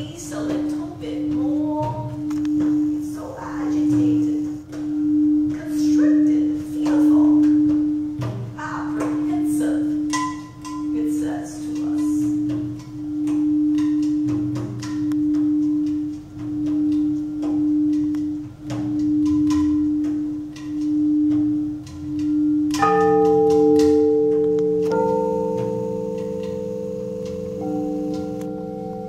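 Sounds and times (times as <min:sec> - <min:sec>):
crystal singing bowls ringing: 0:09.6 - 0:29.0.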